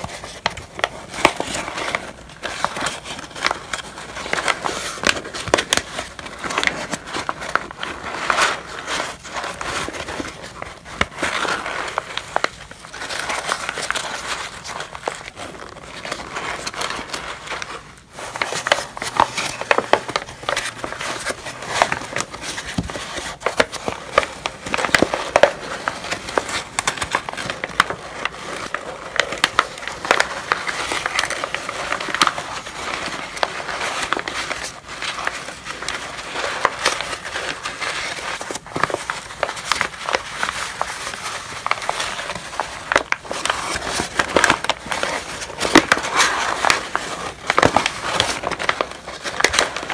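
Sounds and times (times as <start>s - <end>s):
paper crumpling and crackling: 0.0s - 49.9s.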